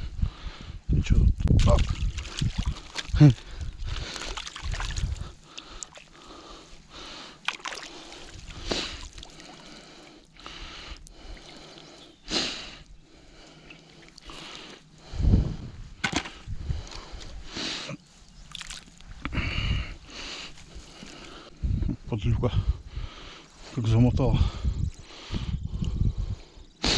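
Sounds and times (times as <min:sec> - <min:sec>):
water sloshing and dripping: 0:01.4 - 0:10.4, 0:13.3 - 0:15.0, 0:18.3 - 0:19.3.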